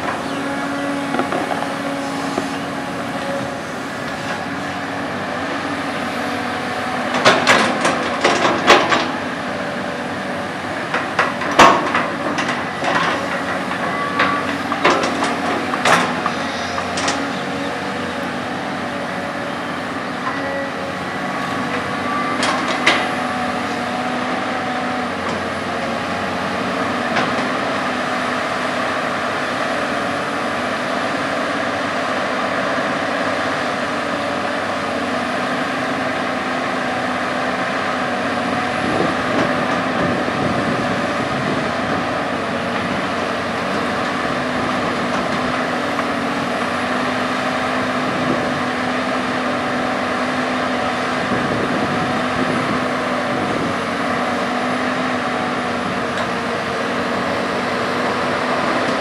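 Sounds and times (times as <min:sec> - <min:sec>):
hydraulic whine: 0:00.0 - 0:08.1, 0:12.6 - 0:24.0
excavator diesel engine under load: 0:00.0 - 0:59.0.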